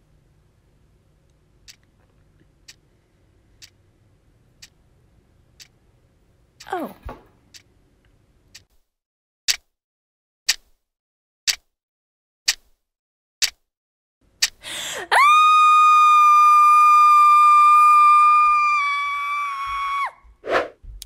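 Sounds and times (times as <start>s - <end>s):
clock ticking: 2.6s - 2.9s, 3.6s - 3.8s, 5.6s - 5.8s, 10.5s - 10.7s, 11.5s - 11.7s
woman screaming: 14.7s - 20.2s.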